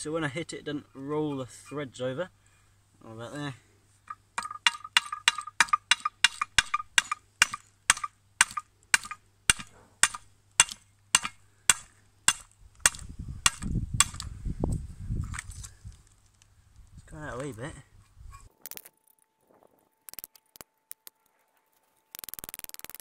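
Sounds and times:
hammer striking metal vice: 4.1s - 14.2s.

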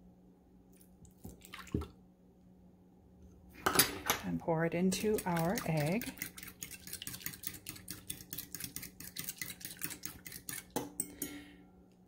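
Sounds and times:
fork whisking in ceramic bowl: 4.7s - 11.4s.

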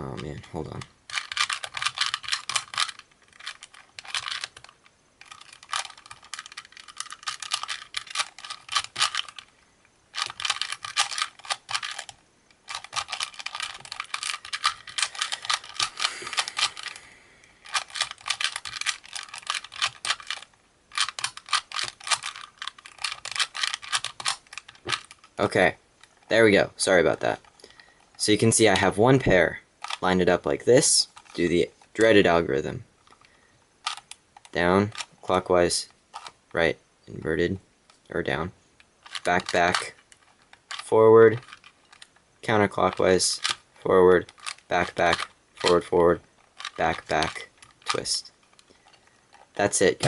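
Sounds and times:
puzzle cube plastic clicking: 0.2s - 26.3s, 29.8s - 30.2s, 30.8s - 32.3s, 33.0s - 36.6s, 38.7s - 50.0s.

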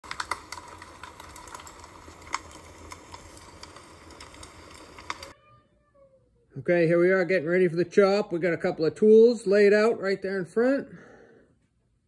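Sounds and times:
fire crackling and popping: 0.0s - 5.4s.

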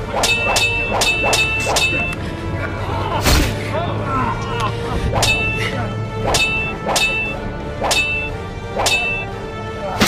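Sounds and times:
swords clashing: 0.1s - 2.2s, 6.2s - 9.2s.

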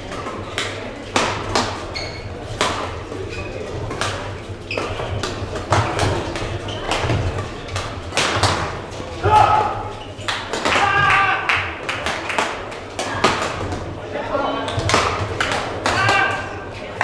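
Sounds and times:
badminton rackets hitting shuttlecock: 0.1s - 3.1s, 3.8s - 11.0s, 12.0s - 13.7s, 14.7s - 16.5s
shoes squeaking on court: 1.7s - 7.8s.

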